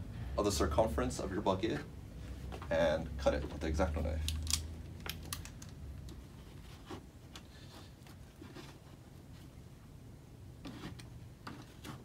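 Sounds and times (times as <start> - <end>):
rope rustling and scraping: 6.0 - 9.7, 10.6 - 12.0.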